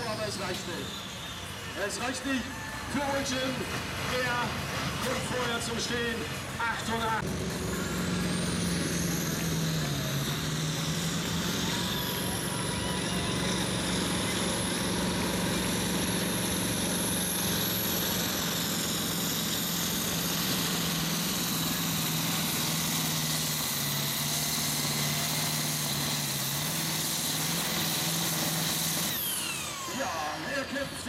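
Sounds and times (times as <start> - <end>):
tractor diesel engine under heavy load: 0.0 - 31.0.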